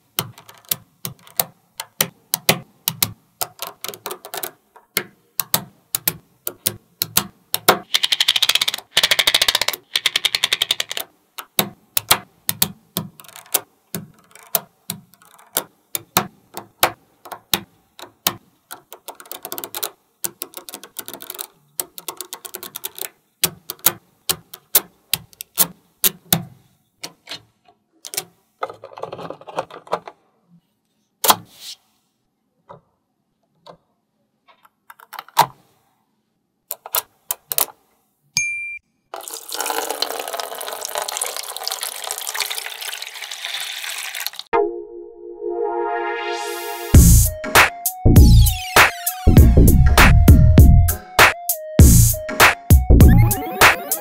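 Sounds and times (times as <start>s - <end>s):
magnetic balls clicking: 0.1s - 26.3s.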